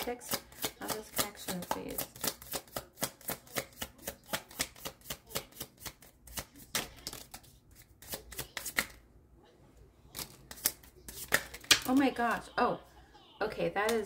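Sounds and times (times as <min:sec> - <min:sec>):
cards being shuffled: 0:00.0 - 0:09.0, 0:10.1 - 0:12.1.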